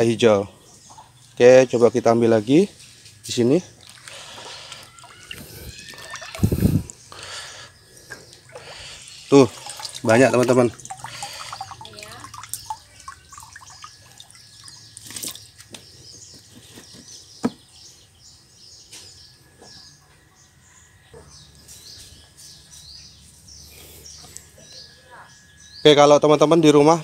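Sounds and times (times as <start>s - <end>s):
small birds chirping: 0.0s - 27.0s
water dripping and splashing: 3.8s - 7.0s, 8.1s - 15.7s.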